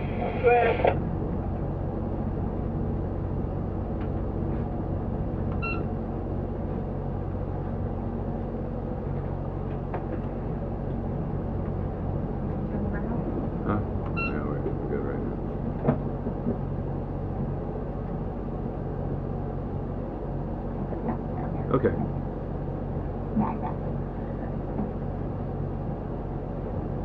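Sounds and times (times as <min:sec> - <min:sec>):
boat engine droning: 0:00.0 - 0:27.0
short electronic beep: 0:05.6 - 0:05.9.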